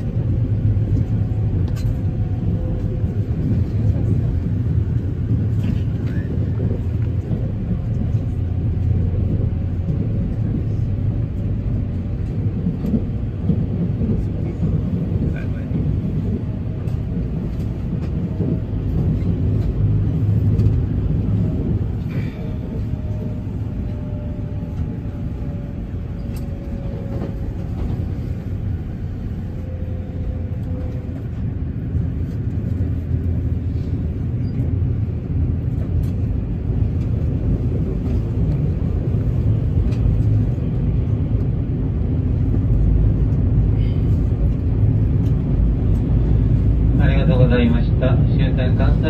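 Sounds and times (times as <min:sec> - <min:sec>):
train rumbling inside carriage: 0:00.0 - 0:49.0.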